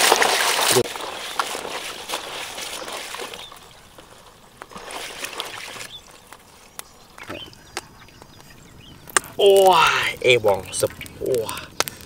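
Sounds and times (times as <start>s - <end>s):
water sloshing in a plastic basin: 0.0s - 8.2s.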